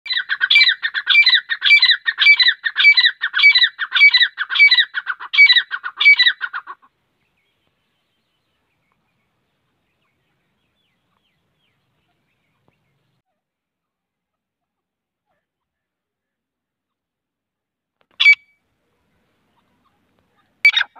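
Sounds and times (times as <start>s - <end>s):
francolin calling: 0.1s - 6.9s, 18.1s - 18.6s, 19.5s - 20.9s.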